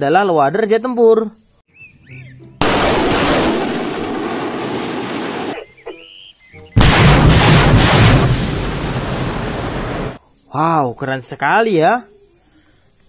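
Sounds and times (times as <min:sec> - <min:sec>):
rocket launches rushing: 0:02.6 - 0:05.6, 0:06.8 - 0:10.2.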